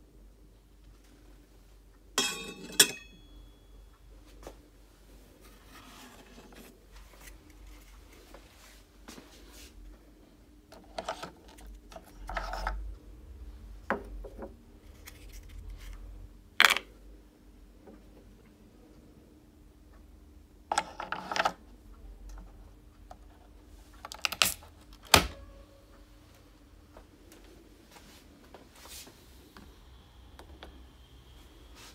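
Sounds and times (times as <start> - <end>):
glass and metal clink: 2.2 - 3.5.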